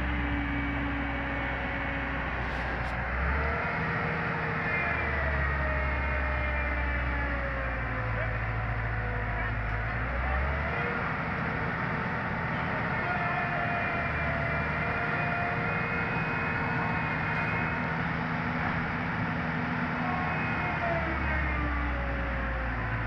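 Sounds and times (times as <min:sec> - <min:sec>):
excavator diesel engine: 0:00.0 - 0:23.0
faint whining tones: 0:04.3 - 0:23.0.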